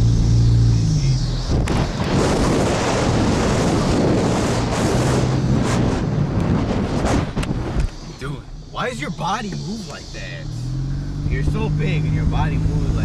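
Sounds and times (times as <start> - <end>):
road and tyre noise: 0.0 - 13.0
wind buffeting microphone: 1.2 - 8.1
car cabin hum: 5.4 - 10.5.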